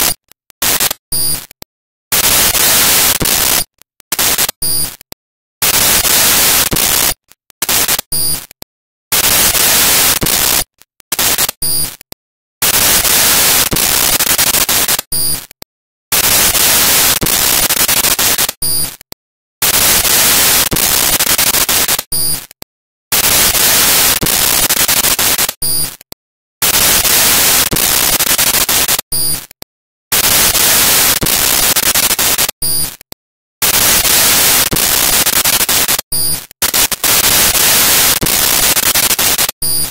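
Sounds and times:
electronic static hiss bursts: 0:00.0 - 0:05.0, 0:05.6 - 0:12.0, 0:12.6 - 0:15.5, 0:16.1 - 0:19.0, 0:19.6 - 0:22.5, 0:23.1 - 0:26.0, 0:26.6 - 0:29.5, 0:30.1 - 0:33.0, 0:33.6 - 0:39.9
short beeping blip: 0:01.1 - 0:01.5, 0:04.6 - 0:05.0, 0:08.1 - 0:08.5, 0:11.6 - 0:12.0, 0:15.1 - 0:15.5, 0:18.6 - 0:19.0, 0:22.1 - 0:22.5, 0:25.6 - 0:26.0, 0:29.1 - 0:29.5, 0:32.6 - 0:33.0, 0:36.1 - 0:36.5, 0:39.6 - 0:39.9.

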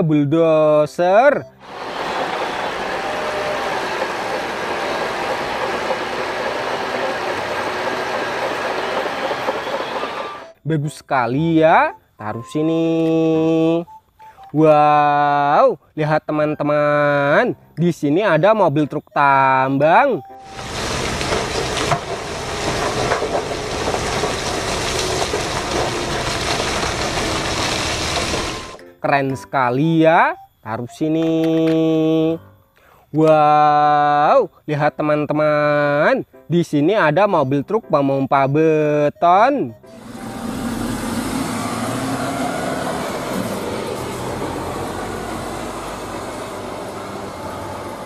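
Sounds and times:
bulldozer engine and tracks: 0:01.4 - 0:10.6, 0:19.4 - 0:28.8, 0:39.8 - 0:48.0
rock tumbling from truck bed: 0:20.5 - 0:28.8.

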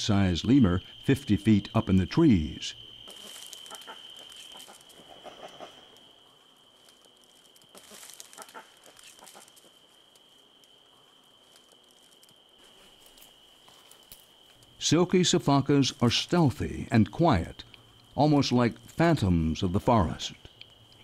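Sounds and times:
high-pitched insect drone: 0:00.0 - 0:10.3
faint rustles and clicks: 0:03.1 - 0:14.8.

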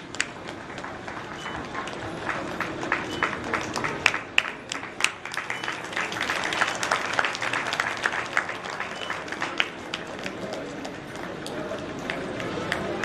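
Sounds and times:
audience applauding: 0:00.1 - 0:13.0.

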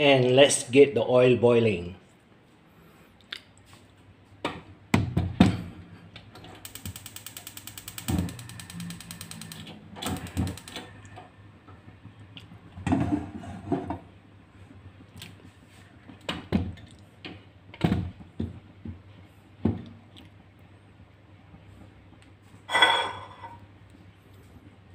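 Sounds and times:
gas igniter clicking rapidly: 0:06.6 - 0:11.1.

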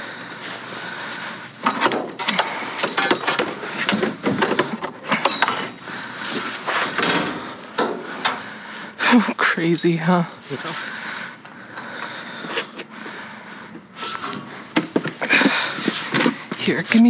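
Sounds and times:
hard objects clattering: 0:01.6 - 0:08.5.

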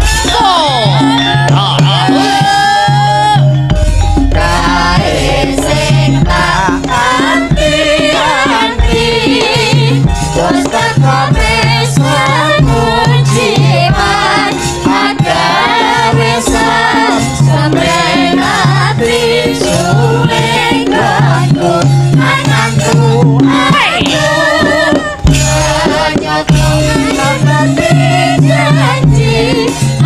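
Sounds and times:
gamelan music: 0:00.0 - 0:30.0
woman singing: 0:04.3 - 0:30.0.

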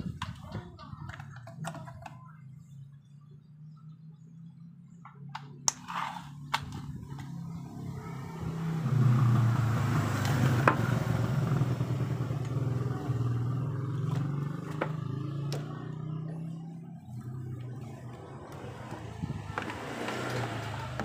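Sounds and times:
vehicle engine running: 0:00.0 - 0:21.0.

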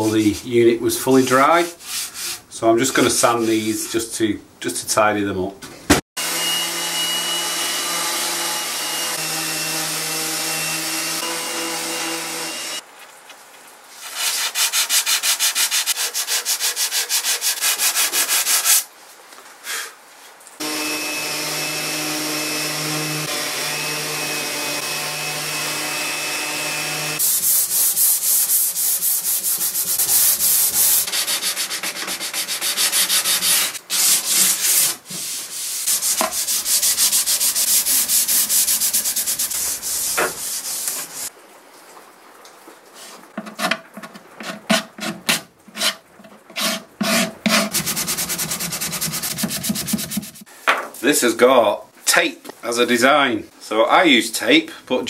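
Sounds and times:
hand sanding wood: 0:01.4 - 0:02.5, 0:14.0 - 0:18.9, 0:20.6 - 0:41.3, 0:44.4 - 0:50.5
orbital sander whining: 0:20.6 - 0:27.6.

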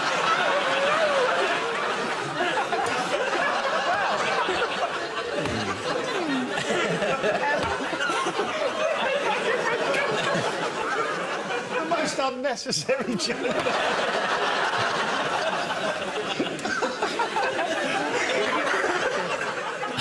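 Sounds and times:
audience laughing: 0:00.0 - 0:20.0.

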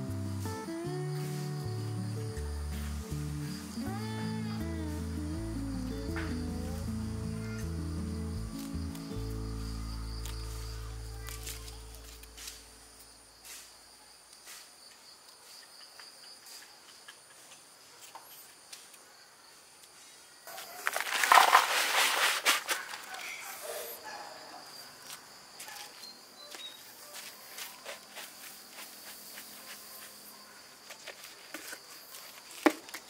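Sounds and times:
insects chirring: 0:00.0 - 0:33.0
loud rustling: 0:20.8 - 0:23.1.

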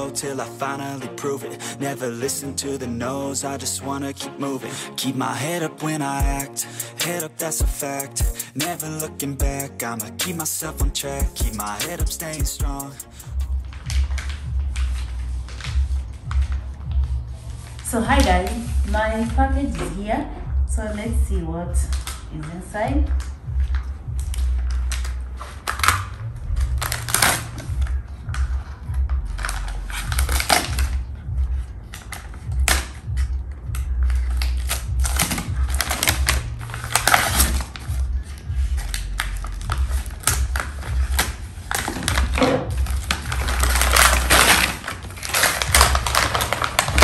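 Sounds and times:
scissors cutting plastic bag: 0:06.1 - 0:13.4, 0:29.3 - 0:31.1, 0:32.0 - 0:38.0, 0:38.8 - 0:47.0
plastic bag crinkling and tearing: 0:06.3 - 0:15.8, 0:34.2 - 0:47.0.

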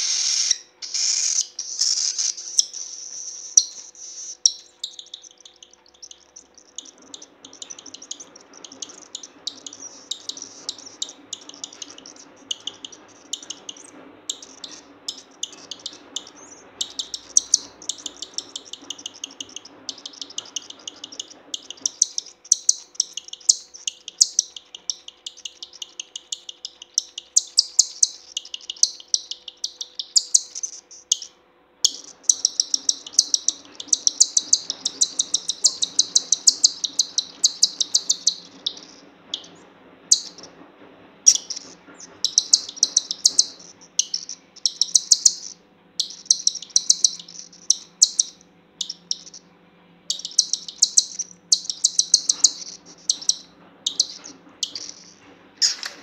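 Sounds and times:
bird chick begging chirps: 0:00.0 - 0:40.6, 0:41.3 - 0:56.0.

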